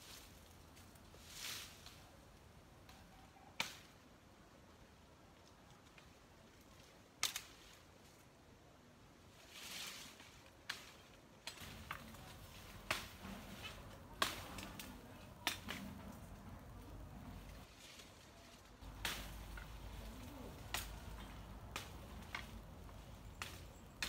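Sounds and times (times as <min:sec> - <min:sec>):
sharp cracks: 0:18.8 - 0:24.0.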